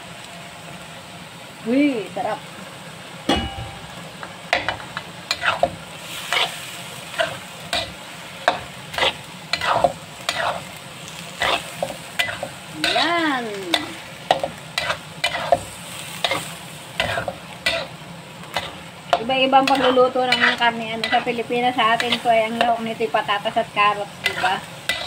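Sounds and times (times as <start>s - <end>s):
frying sizzle: 0.0s - 25.0s
spatula scraping a pan: 4.6s - 22.9s, 24.2s - 25.0s.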